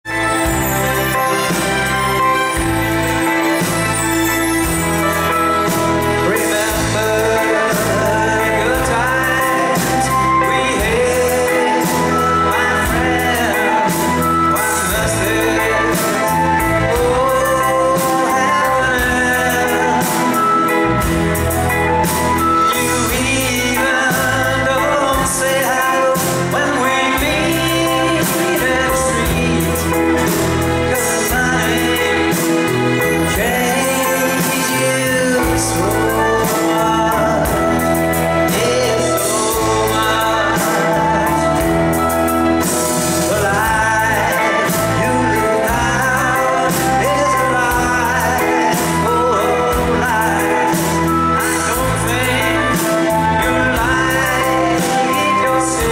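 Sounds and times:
bass: 0.0s - 55.9s
drums: 0.0s - 55.9s
man singing lead: 0.0s - 55.9s.

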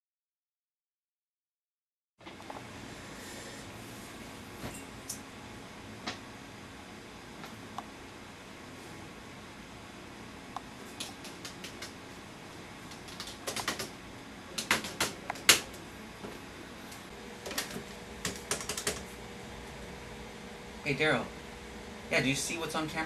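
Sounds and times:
keyboard typing: 10.8s - 12.0s, 12.9s - 14.0s, 14.6s - 15.8s, 17.4s - 19.2s.

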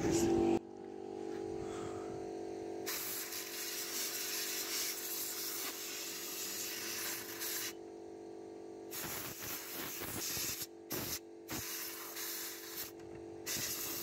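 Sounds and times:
low hum: 0.0s - 2.9s
compressed air hissing: 2.8s - 7.8s, 8.9s - 14.0s.

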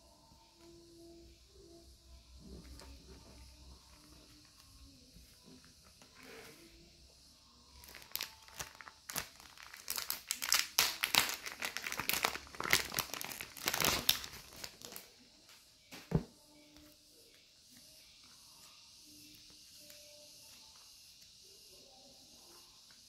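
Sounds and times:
plastic packet crinkling: 7.8s - 15.1s.

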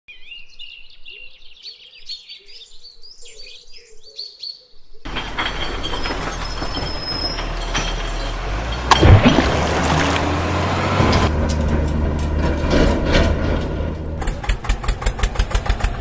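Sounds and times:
small birds singing: 0.1s - 5.1s.

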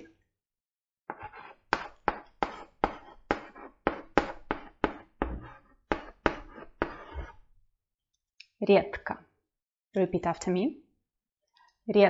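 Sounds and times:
chalk tapping and scraping: 1.1s - 7.5s.

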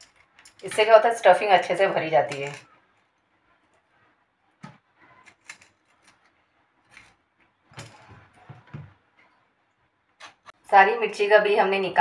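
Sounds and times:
chillies being pried open: 4.6s - 7.2s.

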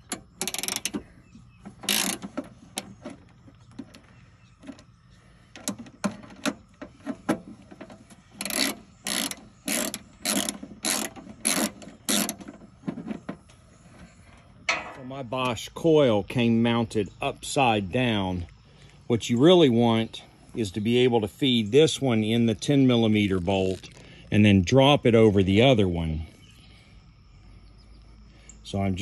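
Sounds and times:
ratchet wrench pawl clicking: 0.0s - 1.0s, 8.4s - 12.4s.

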